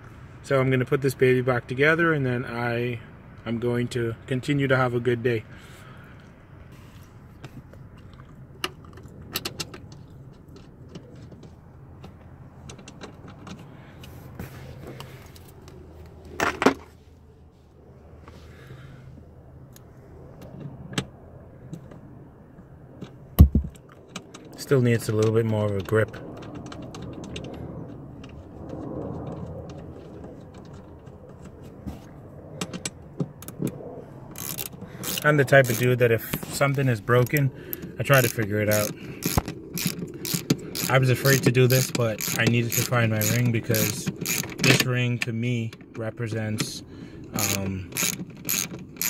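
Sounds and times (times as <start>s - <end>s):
rustle of hands working: 9.8s - 18.9s
loud knock: 23.4s - 23.8s
socket ratchet clicks: 34.4s - 35.9s, 38.1s - 44.8s, 47.4s - 49.0s.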